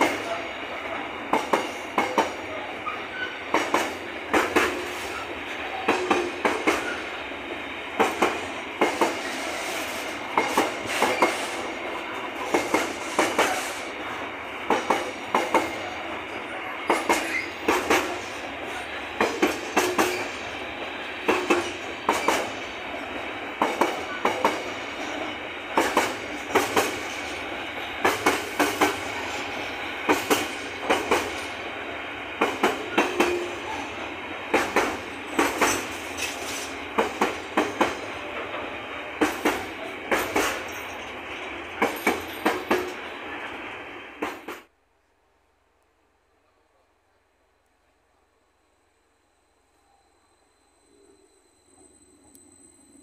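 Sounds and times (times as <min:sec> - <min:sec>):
train wheels clattering over rail joints: 0:01.3 - 0:02.5, 0:03.1 - 0:07.2, 0:07.9 - 0:11.8, 0:12.4 - 0:14.0, 0:14.6 - 0:15.9, 0:16.8 - 0:31.6, 0:32.3 - 0:33.8, 0:34.5 - 0:43.1, 0:44.2 - 0:44.7.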